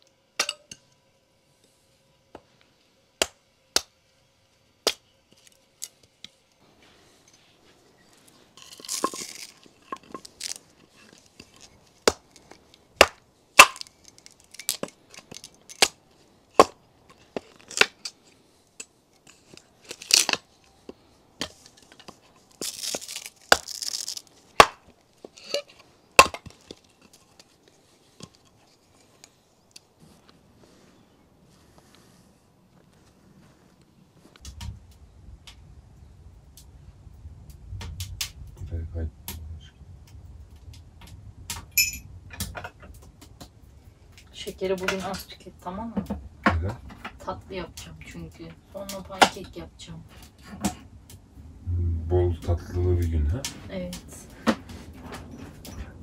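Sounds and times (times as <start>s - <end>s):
wood splitting apart: 8.6s - 16.0s, 19.3s - 20.6s, 21.7s - 27.4s
hatchet chopping wood: 12.0s - 12.2s, 13.0s - 13.9s, 16.6s - 16.8s, 26.2s - 26.5s.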